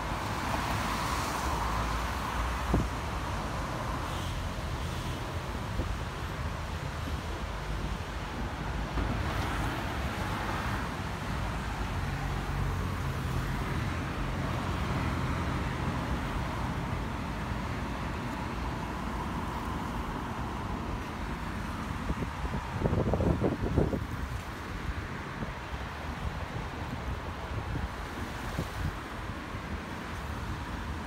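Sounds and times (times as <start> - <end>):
distant road traffic rumble: 0.0 - 31.0.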